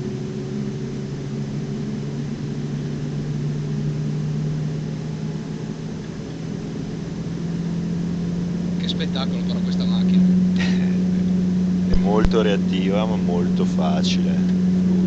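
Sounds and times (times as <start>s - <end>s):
car engine cruising at low revs: 0.0s - 15.0s
road noise: 0.0s - 15.0s.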